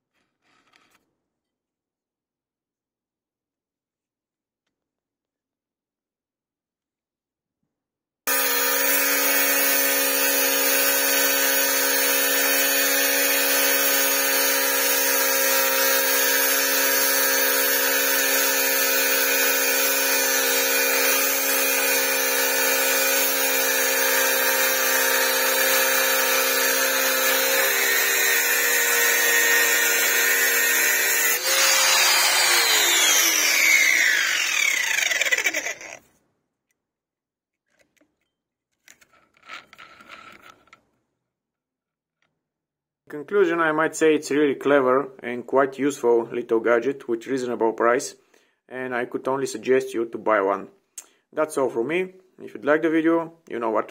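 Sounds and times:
angle grinder running: 0:08.3 - 0:36.0
grinder disc winding down: 0:31.0 - 0:36.0.

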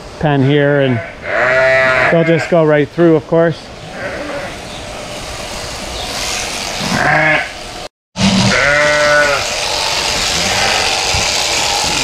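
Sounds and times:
sheep bleating: 0:00.9 - 0:02.6, 0:03.8 - 0:04.6, 0:06.8 - 0:07.6, 0:08.3 - 0:12.0.

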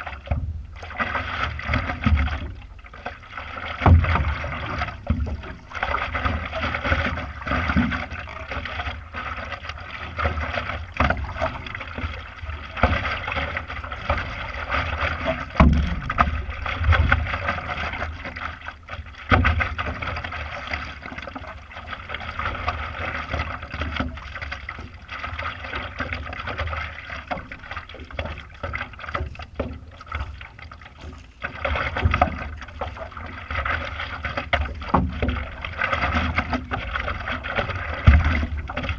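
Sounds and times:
paddle pulling through water: 0:00.0 - 0:38.9
water lapping against paddleboard: 0:00.0 - 0:38.9.

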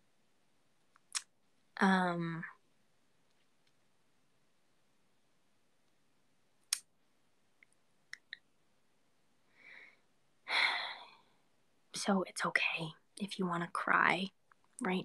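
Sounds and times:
person breathing: 0:09.4 - 0:11.3.

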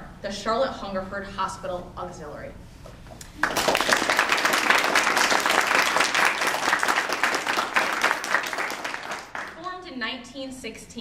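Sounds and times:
audience applauding: 0:03.4 - 0:09.6.

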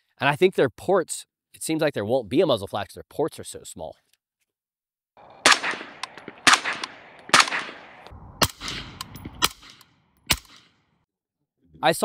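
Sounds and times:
suppressed rifle shots: 0:05.2 - 0:10.7.

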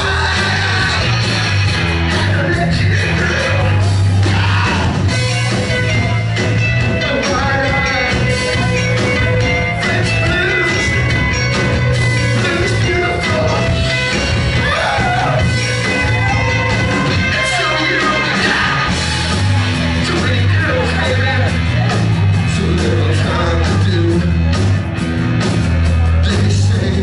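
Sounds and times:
man singing: 0:00.0 - 0:05.2, 0:06.9 - 0:11.4, 0:12.2 - 0:13.9, 0:17.3 - 0:19.0, 0:20.0 - 0:24.6, 0:26.1 - 0:27.0
rock band playing live: 0:00.0 - 0:27.0.

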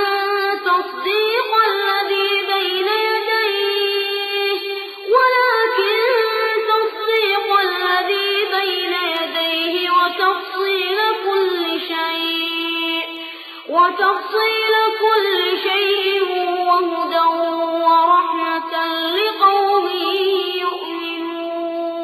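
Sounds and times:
person chanting recitation: 0:00.0 - 0:22.0.

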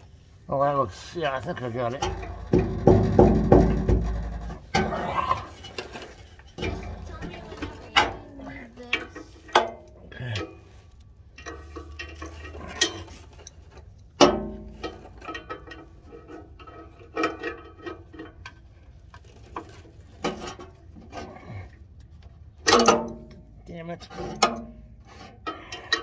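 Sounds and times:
small taps and scrapes: 0:10.7 - 0:26.0.

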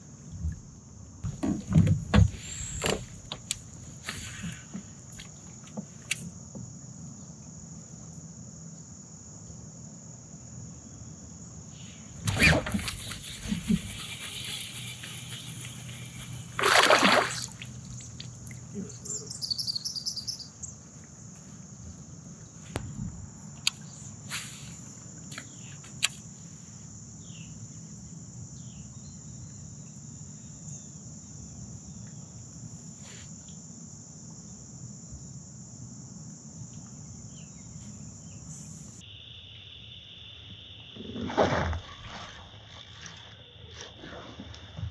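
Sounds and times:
insects droning: 0:00.0 - 0:44.9
splash in water: 0:16.6 - 0:17.8, 0:41.1 - 0:44.9.

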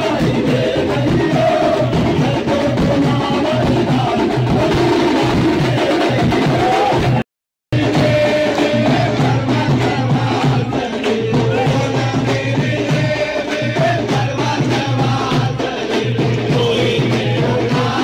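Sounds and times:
devotional singing into microphones: 0:00.0 - 0:07.2, 0:07.8 - 0:18.0
drum and shaker percussion: 0:00.0 - 0:07.2, 0:07.8 - 0:18.0
crowd singing along: 0:00.0 - 0:18.0.

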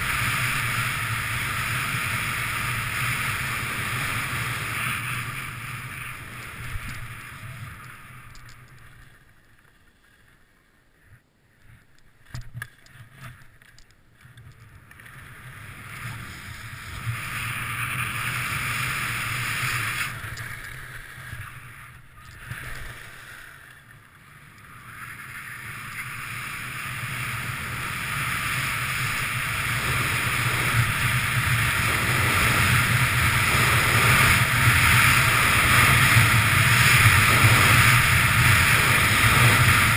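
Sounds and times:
skis sliding on snow: 0:00.0 - 0:11.9, 0:14.2 - 0:39.9
wind rushing over microphone: 0:26.6 - 0:39.9.

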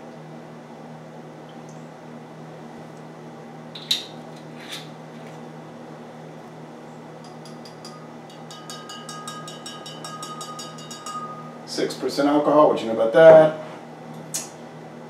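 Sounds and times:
steady low hum: 0:00.0 - 0:15.0
glass bottle clinks: 0:07.3 - 0:11.6.

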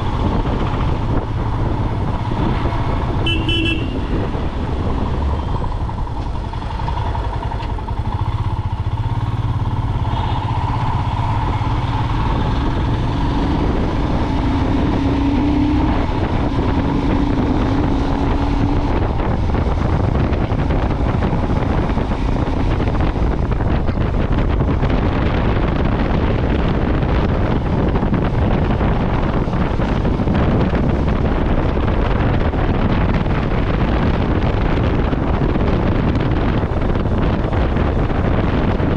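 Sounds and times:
motorcycle engine running: 0:00.0 - 0:38.9
wind on microphone: 0:00.0 - 0:38.9.

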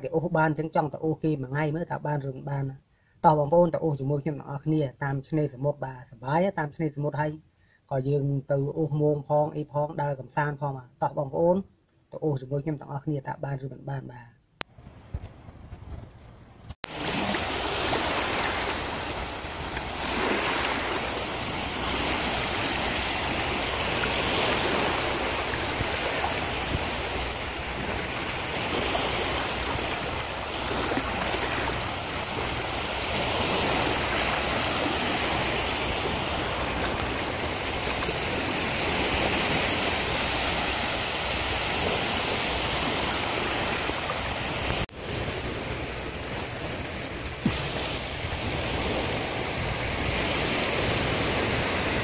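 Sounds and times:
wind rumble on microphone: 0:14.6 - 0:52.0
surf washing over sandy beach: 0:16.9 - 0:52.0.

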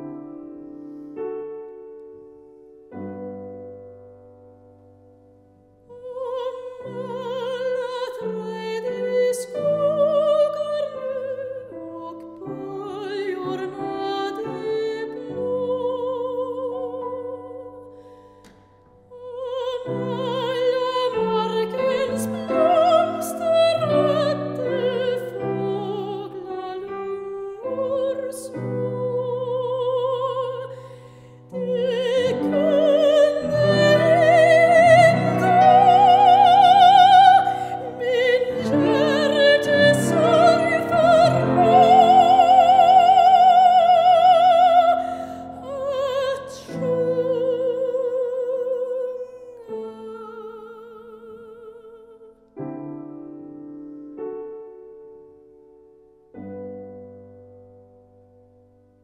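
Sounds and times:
grand piano: 0:00.0 - 0:59.0
operatic soprano singing: 0:05.9 - 0:17.9, 0:19.1 - 0:52.6.

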